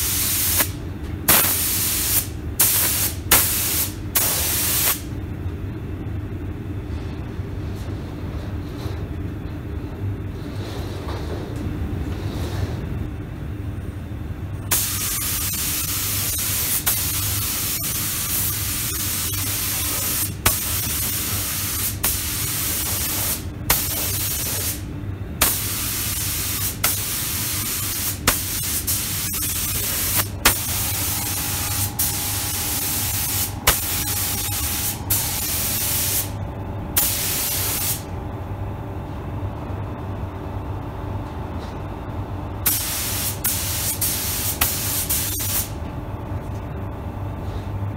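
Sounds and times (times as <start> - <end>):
spray gun hissing: 0.0 - 0.7, 1.3 - 5.0, 14.7 - 24.8, 25.4 - 36.3, 37.0 - 38.0, 42.7 - 45.7
steady low hum: 0.0 - 47.9.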